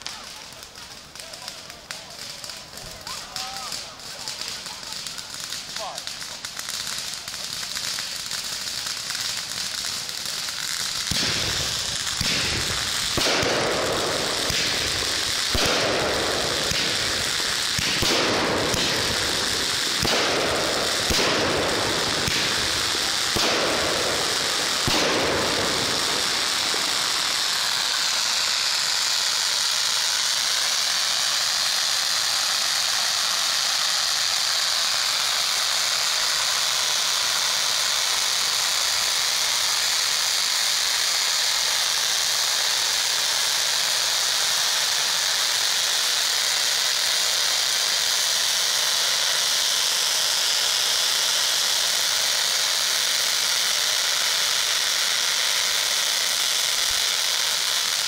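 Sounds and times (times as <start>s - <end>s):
hiss of spraying sparks: 0.0s - 58.0s.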